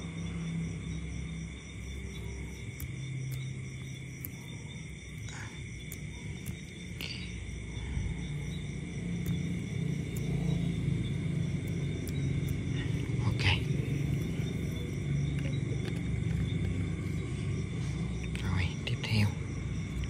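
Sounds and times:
low rumbling drone: 0:00.0 - 0:20.0
night insects trilling: 0:00.0 - 0:20.0.

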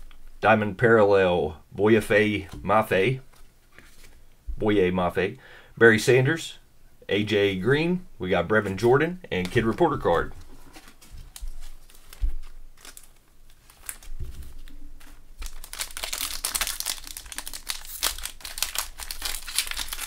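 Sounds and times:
foil wrapper crinkling: 0:10.7 - 0:20.0.

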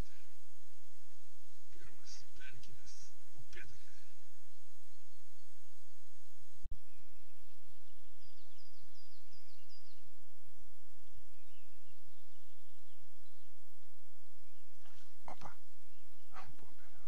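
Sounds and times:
songbird singing: 0:00.0 - 0:17.0.

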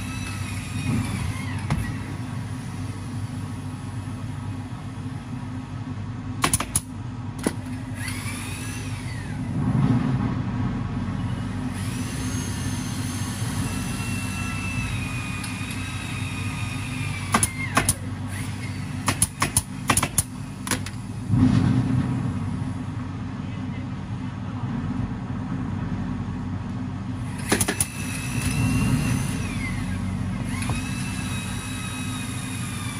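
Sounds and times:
steady low hum: 0:00.0 - 0:32.9
pneumatic staple gun shots: 0:06.4 - 0:08.9, 0:17.2 - 0:21.0, 0:27.3 - 0:29.8.

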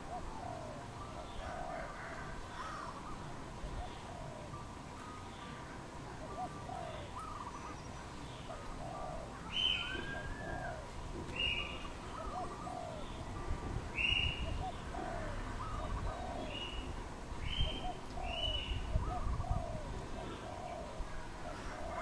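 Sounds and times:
doves cooing: 0:00.0 - 0:07.8, 0:08.4 - 0:22.0.

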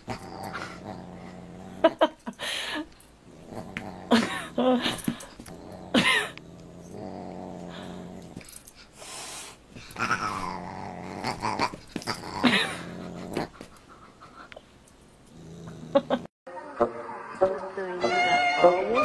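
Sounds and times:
low growling: 0:00.0 - 0:02.1, 0:03.2 - 0:08.6, 0:09.9 - 0:13.6, 0:15.3 - 0:16.3.

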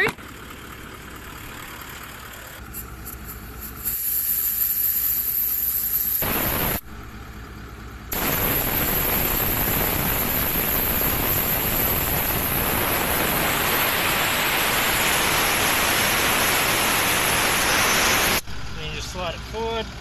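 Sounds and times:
air hissing out of a tyre: 0:02.6 - 0:06.8, 0:08.1 - 0:18.4.

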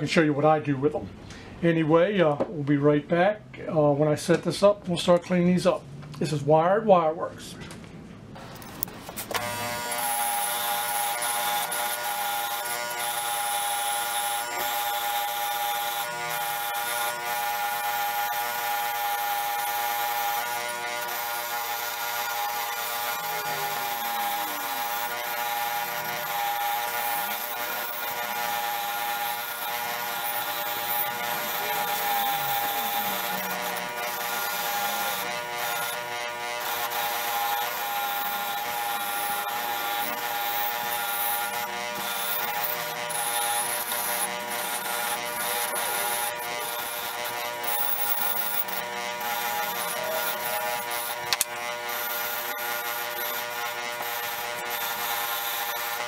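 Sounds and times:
motor humming: 0:08.4 - 0:56.0
wire brush scratching metal: 0:37.0 - 0:56.0.

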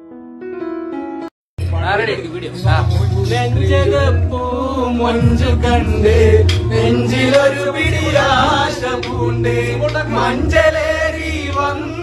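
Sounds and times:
backing music with heavy bass: 0:01.6 - 0:12.0
men singing in chorus: 0:03.0 - 0:12.0.

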